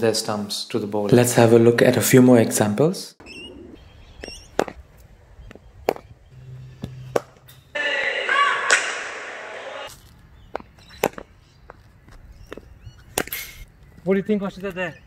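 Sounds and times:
cricket ball hitting bat: 4.5 - 4.8, 5.8 - 6.1, 6.8 - 7.4
echoing indoor hall noise: 7.7 - 9.9.

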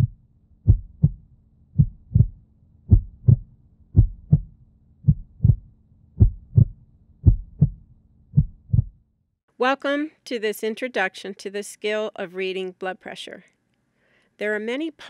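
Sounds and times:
heartbeat thumps: 0.0 - 9.0.

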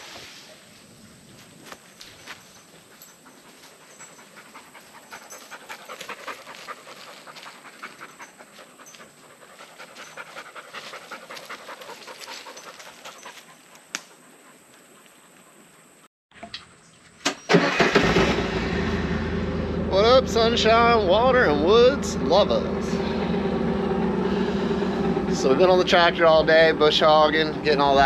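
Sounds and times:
dog panting: 2.6 - 16.0.

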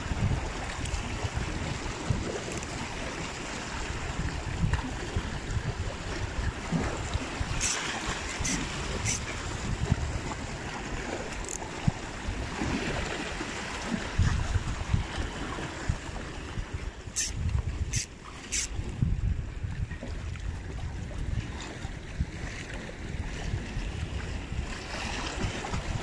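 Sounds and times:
sea surf washing against rocks: 0.0 - 19.2
wind buffeting microphone: 0.0 - 26.0.

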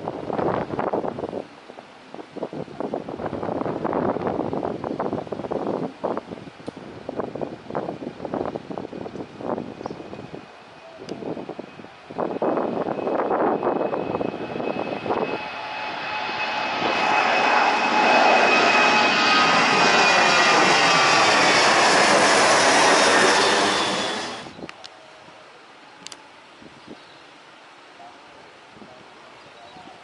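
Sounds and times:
jet engine high whine: 9.4 - 24.8
jet engine roar: 10.0 - 24.6.

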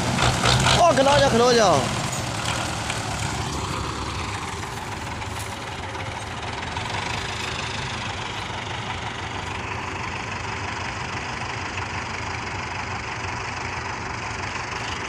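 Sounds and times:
tractor diesel engines running: 0.0 - 15.0.

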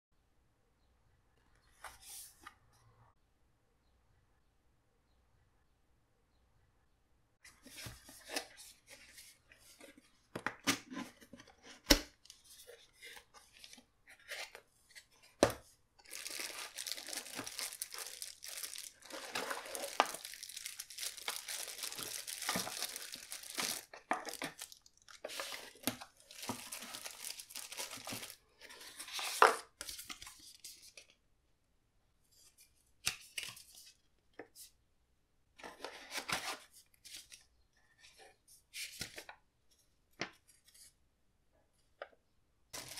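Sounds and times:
plastic crinkling: 16.0 - 28.4
paper rustling: 16.1 - 31.0.

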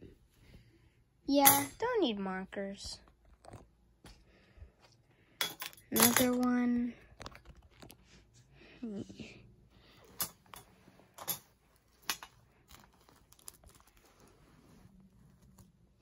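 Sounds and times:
toys being moved about: 5.4 - 8.4, 10.0 - 16.0.

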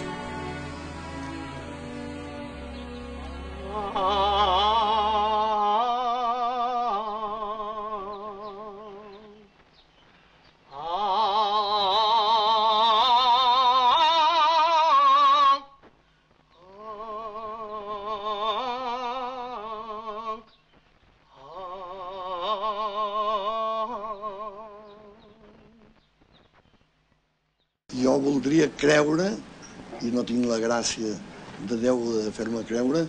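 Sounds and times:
person singing unaccompanied: 3.2 - 26.2.

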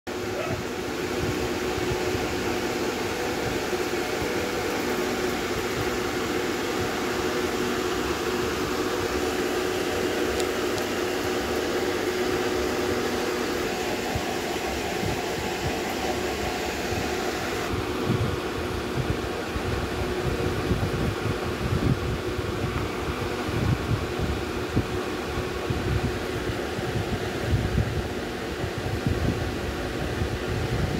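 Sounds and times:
machinery whirring and hissing: 0.2 - 20.7.

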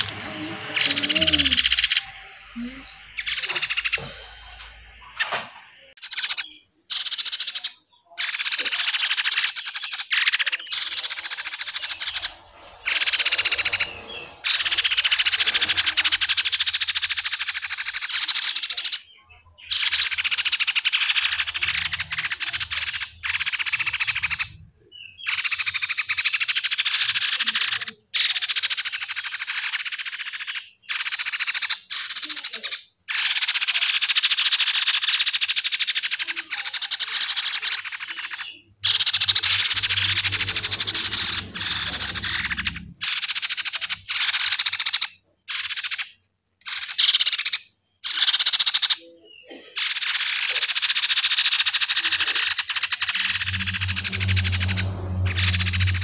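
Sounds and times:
fledgling birds begging chirps: 0.0 - 27.1, 36.2 - 44.4.

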